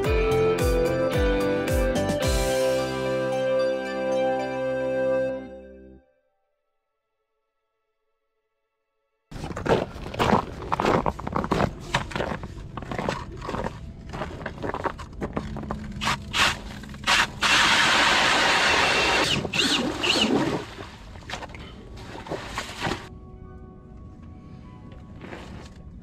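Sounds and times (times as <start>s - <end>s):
footsteps crunching on snow: 9.3s - 16.8s
ice auger grinding: 9.3s - 20.6s.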